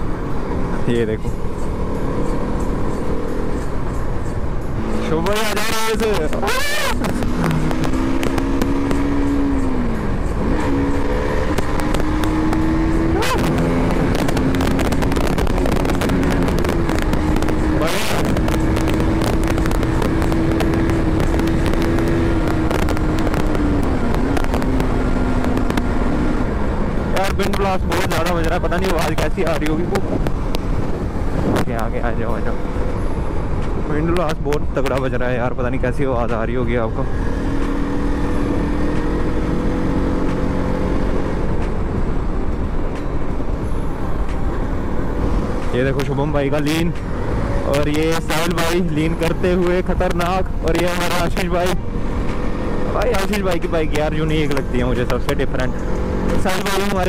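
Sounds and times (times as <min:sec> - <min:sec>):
motorcycle engine cruising: 0:00.0 - 0:57.0
wind buffeting microphone: 0:07.0 - 0:33.9.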